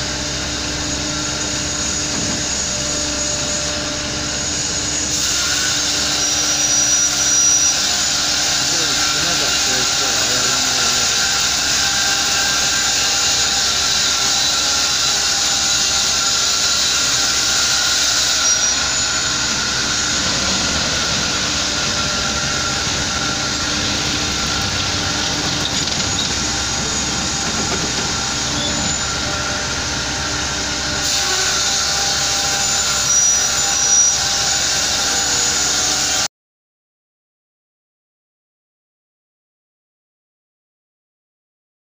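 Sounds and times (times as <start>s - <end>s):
band saw cutting log: 0.0s - 36.3s
high squeaks: 16.7s - 29.7s.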